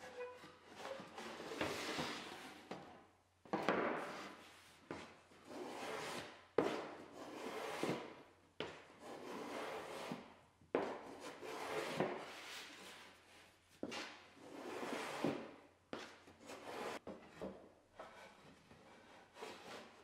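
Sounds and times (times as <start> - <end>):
block plane shaving wood: 5.5 - 8.0, 9.0 - 10.2, 11.2 - 12.4.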